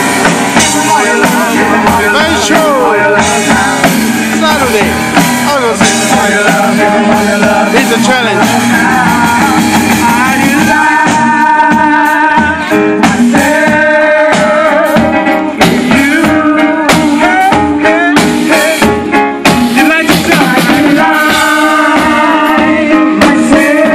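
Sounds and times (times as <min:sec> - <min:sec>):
people singing: 0:00.0 - 0:23.9
worship band playing: 0:00.0 - 0:23.9.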